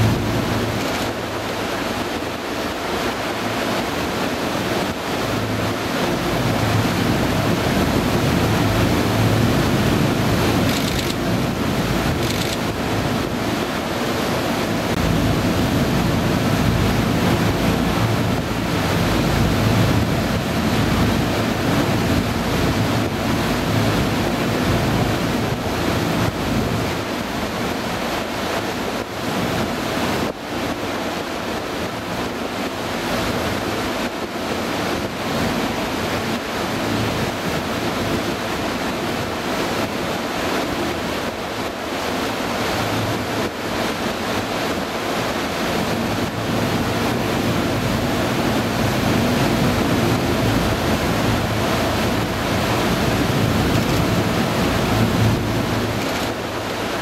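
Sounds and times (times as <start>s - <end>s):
boat engine running: 0.0s - 57.0s
rush of wind and water: 0.0s - 57.0s.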